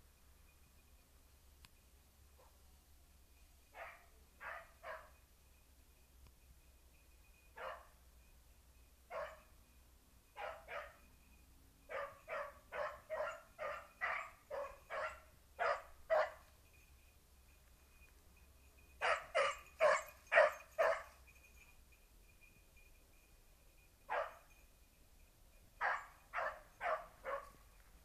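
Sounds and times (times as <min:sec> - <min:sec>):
hound barking: 0:03.8 - 0:05.2, 0:07.6 - 0:07.9, 0:09.1 - 0:09.5, 0:10.4 - 0:11.0, 0:11.9 - 0:16.4, 0:19.0 - 0:21.2, 0:24.1 - 0:24.4, 0:25.8 - 0:27.6.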